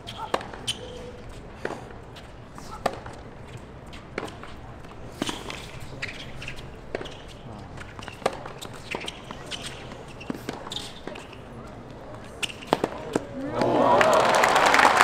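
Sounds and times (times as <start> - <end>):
tennis ball hitting racquets: 0.0 - 13.8
players' footsteps: 0.0 - 15.0
ball bouncing: 0.1 - 1.0, 6.8 - 11.4, 12.4 - 13.7.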